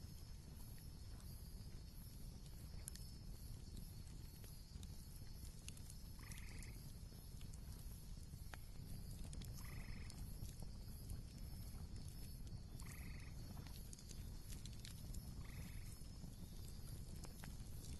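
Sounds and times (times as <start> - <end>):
campfire crackling: 0.0 - 17.9.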